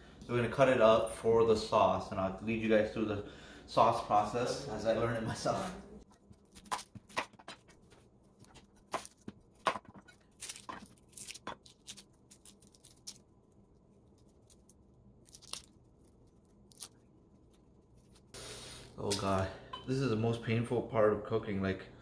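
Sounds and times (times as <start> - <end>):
onion skin crackling: 6.1 - 19.5.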